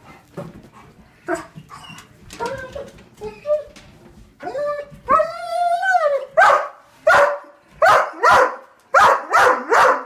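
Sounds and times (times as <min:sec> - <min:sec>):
dog whining: 0:01.3 - 0:03.8
dog barking: 0:06.4 - 0:10.0.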